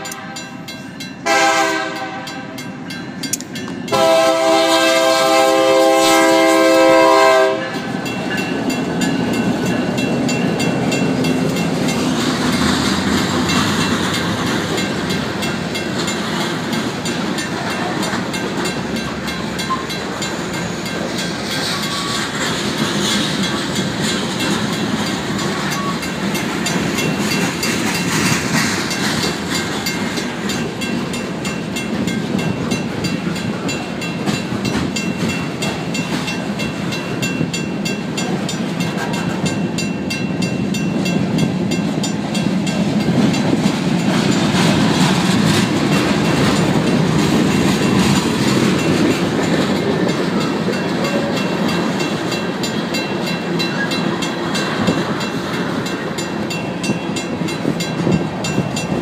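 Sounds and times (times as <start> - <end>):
locomotive horn blasts: 0.0 - 0.6, 1.2 - 2.6, 3.9 - 7.9
crossing bell ringing: 0.0 - 59.0
freight train wheels rumbling: 0.0 - 59.0.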